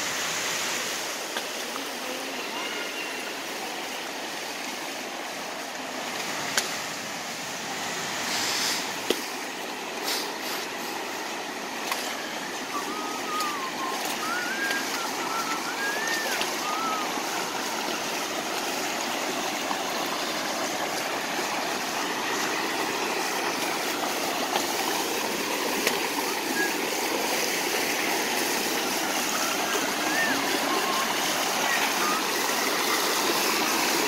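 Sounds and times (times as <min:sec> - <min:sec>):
creek rushing over rocks: 0:00.0 - 0:34.0
bird whistling: 0:12.0 - 0:17.8, 0:26.4 - 0:26.9, 0:29.3 - 0:32.4.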